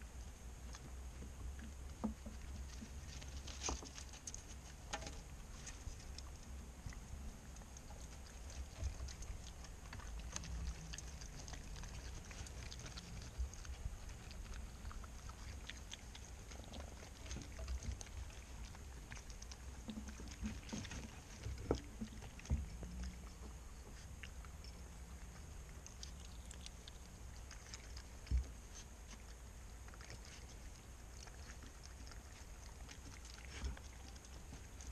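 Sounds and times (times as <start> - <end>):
animal crunching seeds: 0.0 - 34.9
low steady rumble: 0.0 - 34.9.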